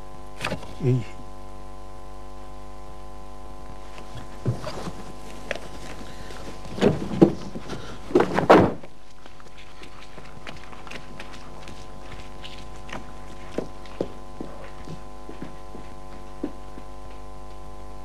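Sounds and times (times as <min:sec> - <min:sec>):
electrical hum: 0:00.0 - 0:18.0
thuds and knocks: 0:04.2 - 0:05.0, 0:06.5 - 0:09.0.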